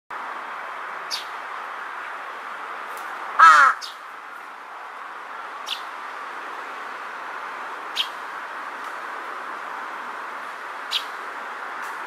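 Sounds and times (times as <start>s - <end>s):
crow cawing: 3.4s - 3.9s.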